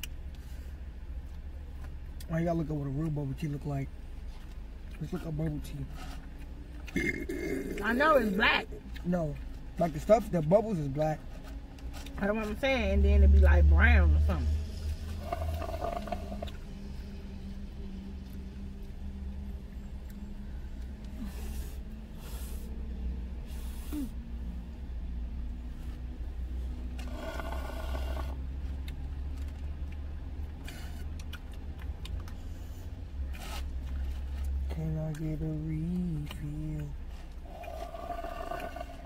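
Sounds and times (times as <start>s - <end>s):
chewing: 4.2s - 12.6s, 14.8s - 17.2s, 27.0s - 39.0s.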